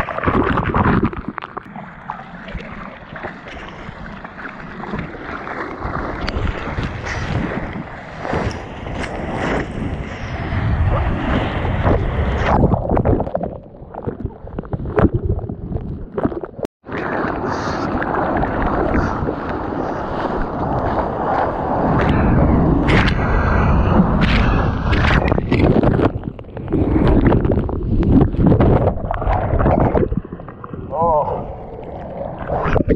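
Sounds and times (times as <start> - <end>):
ocean water rushing and splashing: 0.0 - 14.5, 16.8 - 32.9
wind buffeting microphone: 5.8 - 15.8, 17.8 - 31.8.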